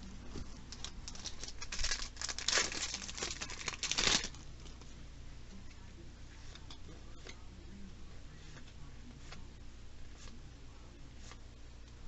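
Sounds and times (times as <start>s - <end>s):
cards rustling and crinkling: 0.2s - 4.9s.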